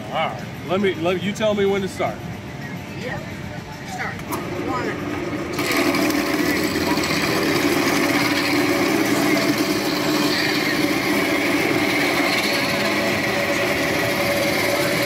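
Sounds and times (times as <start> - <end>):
tool cutting wood: 5.5 - 15.0
wood lathe running: 5.5 - 15.0.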